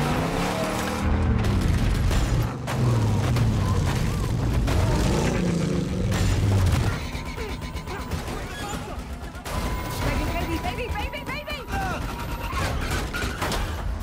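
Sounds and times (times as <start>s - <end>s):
car engines revving hard: 0.0s - 8.3s.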